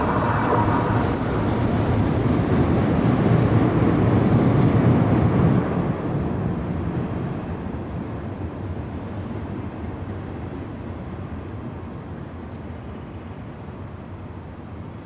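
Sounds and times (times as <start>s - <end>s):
train rumbling: 0.0s - 8.0s.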